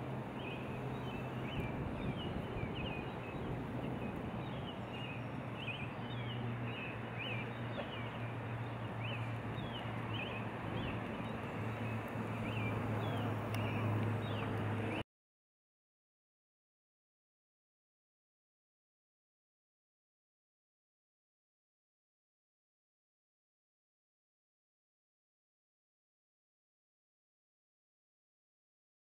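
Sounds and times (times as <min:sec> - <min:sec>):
small birds chirping: 0:00.4 - 0:15.0.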